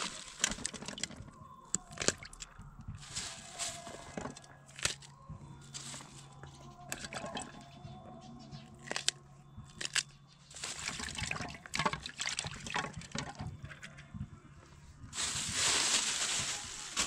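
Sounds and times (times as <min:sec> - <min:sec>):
water splashing and sloshing: 0:00.0 - 0:01.3, 0:09.8 - 0:13.6
low steady hum: 0:00.0 - 0:17.0.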